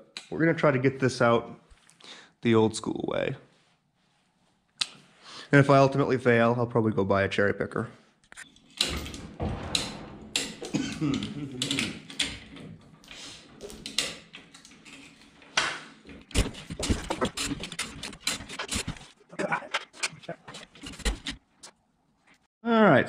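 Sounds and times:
metallic clicks and knocks: 0:08.4 - 0:21.4.

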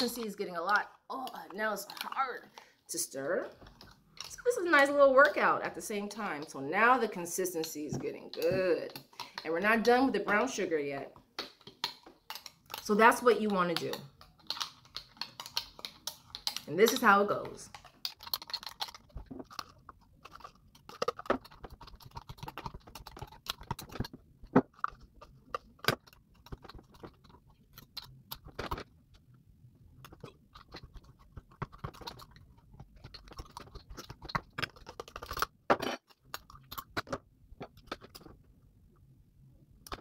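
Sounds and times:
spoon crunching and scraping scrub: 0:00.0 - 0:02.6, 0:03.5 - 0:06.6, 0:11.5 - 0:29.3, 0:29.9 - 0:38.4.

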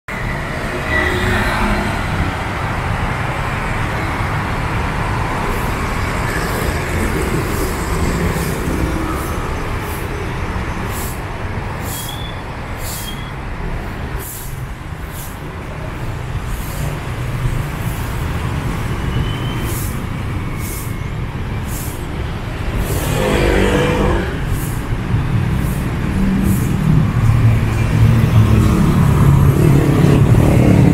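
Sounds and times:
traffic rumble: 0:00.1 - 0:30.9
loud vehicle passing: 0:21.8 - 0:30.9.

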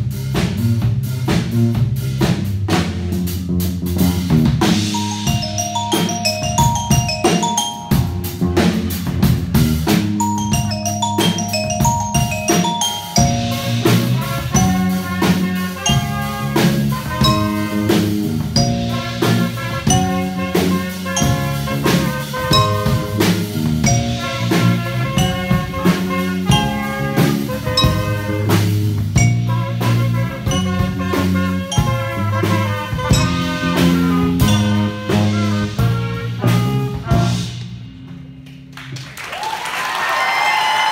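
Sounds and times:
drum kit beat: 0:00.0 - 0:38.7
electric bass: 0:00.0 - 0:38.8
swing jazz band playing: 0:00.0 - 0:38.9
held melody notes: 0:04.6 - 0:09.3, 0:09.9 - 0:36.1
cheering and applause: 0:38.7 - 0:40.9.

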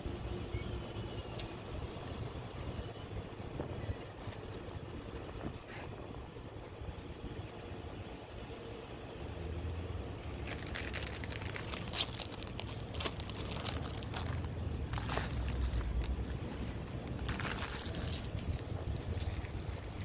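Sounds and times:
steady low rumble: 0:00.0 - 0:20.0
crunchy chewing: 0:10.2 - 0:20.0
paper crinkling: 0:10.2 - 0:20.0.

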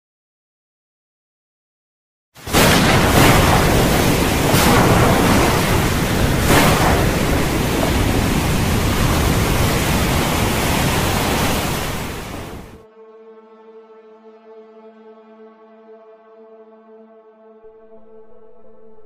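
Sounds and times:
storm wind rushing: 0:02.4 - 0:12.8.

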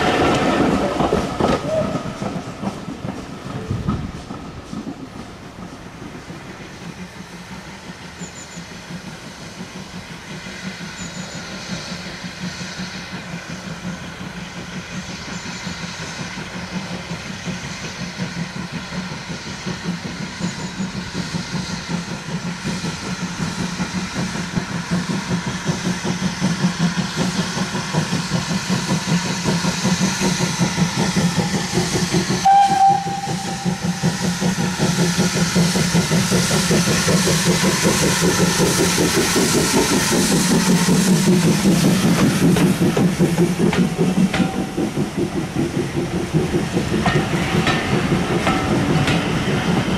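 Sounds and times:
steam locomotive exhaust beats: 0:00.0 - 0:49.9
steam whistle blast: 0:32.4 - 0:34.1.

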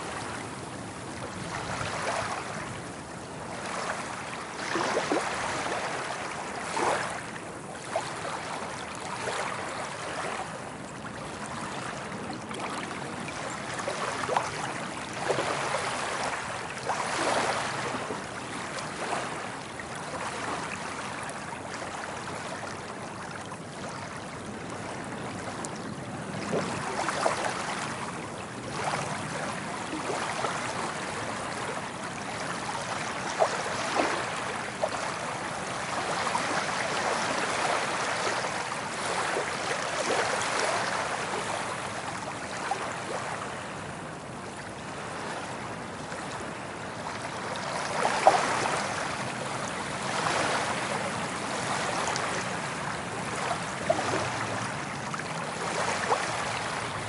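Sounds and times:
ocean waves washing on beach: 0:00.0 - 0:57.0.

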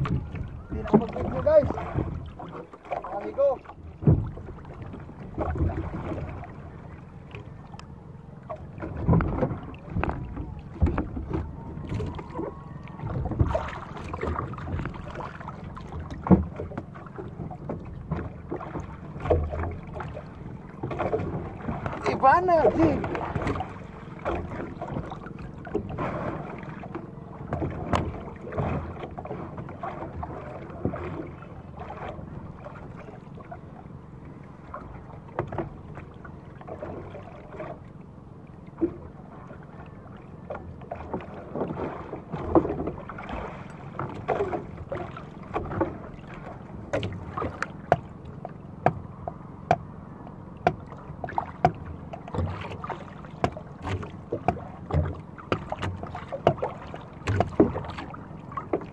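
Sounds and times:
wind on microphone: 0:00.0 - 0:02.3
knocks against boat: 0:00.0 - 0:06.3, 0:08.5 - 0:33.0, 0:34.7 - 0:37.8, 0:40.5 - 0:58.9
faint low humming: 0:00.0 - 0:58.9
water lapping against boat hull: 0:00.0 - 0:58.9.

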